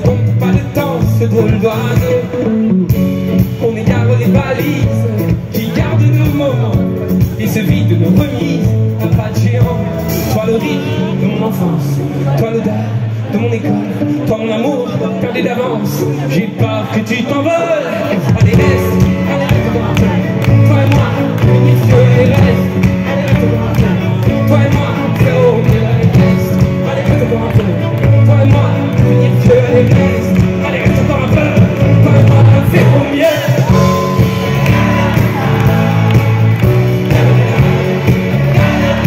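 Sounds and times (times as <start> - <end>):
bass: 0.0 - 39.0
electric guitar: 0.0 - 39.0
people singing: 16.4 - 39.0.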